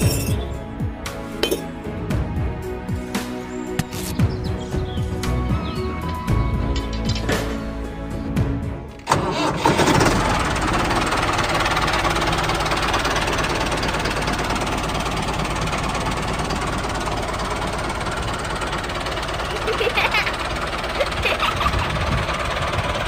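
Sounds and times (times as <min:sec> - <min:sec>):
background music: 0:00.0 - 0:10.4
tractor engine running: 0:00.0 - 0:23.0.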